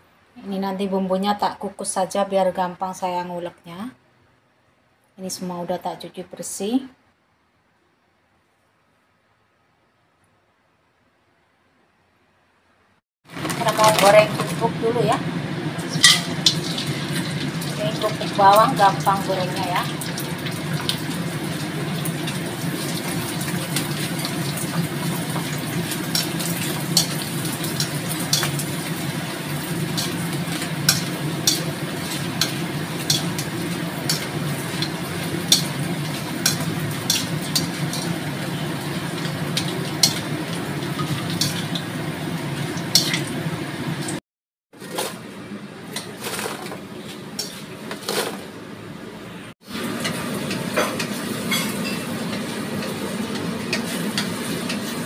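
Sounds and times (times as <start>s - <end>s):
shallots and garlic frying in oil: 13.3s - 44.2s, 44.8s - 48.5s, 49.6s - 55.0s
metal ladle clinking on wok: 15.9s - 16.7s.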